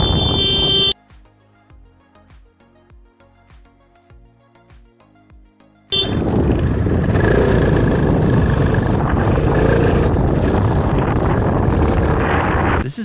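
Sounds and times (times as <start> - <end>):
motorcycle wind and engine rush: 0.0 - 0.9, 5.9 - 12.8.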